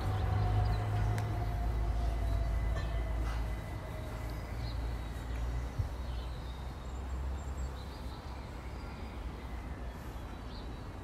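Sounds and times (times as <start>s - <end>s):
jet airliner rumbling overhead: 0.0s - 6.0s
birds chirping: 0.0s - 11.0s.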